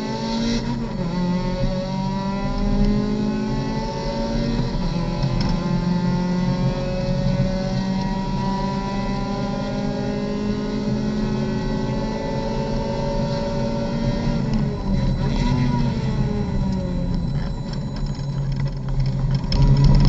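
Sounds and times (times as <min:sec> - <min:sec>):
race car engine revving: 0:00.0 - 0:20.0.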